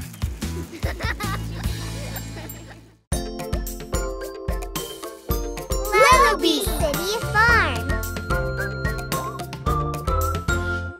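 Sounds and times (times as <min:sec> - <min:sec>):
high melody notes: 0:05.6 - 0:08.8.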